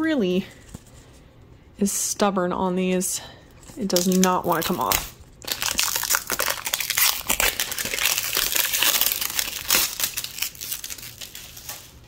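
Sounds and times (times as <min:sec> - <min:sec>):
stiff paper tearing and crinkling: 0:03.8 - 0:12.0.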